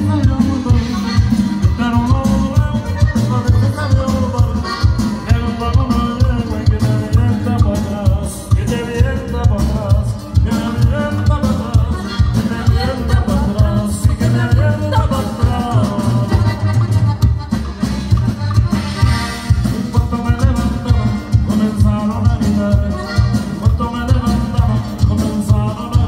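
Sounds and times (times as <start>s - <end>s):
accordion melody: 0.0s - 26.0s
drums beat: 0.0s - 26.0s
electric bass: 0.0s - 26.0s
saxophone melody: 16.3s - 19.7s.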